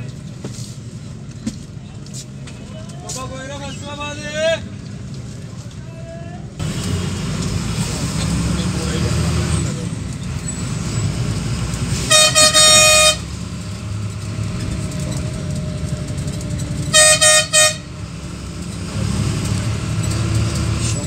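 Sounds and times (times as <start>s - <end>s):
vehicle rumble from inside cabin: 0.0s - 21.0s
vehicle horn: 12.0s - 13.4s, 16.9s - 18.0s.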